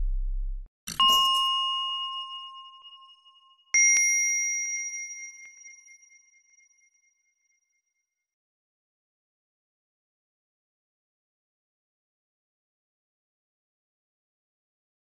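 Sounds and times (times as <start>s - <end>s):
bell-like ding: 0.9s - 7.1s.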